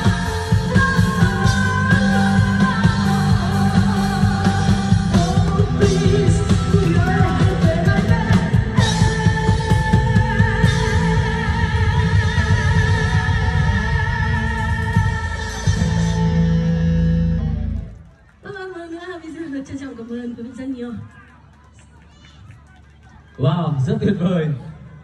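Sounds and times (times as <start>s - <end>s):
drum kit with cymbals: 0.0s - 11.6s.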